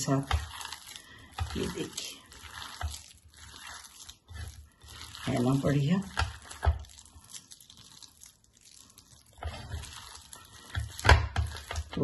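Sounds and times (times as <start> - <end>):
hands kneading wet dough: 0.0 - 12.0.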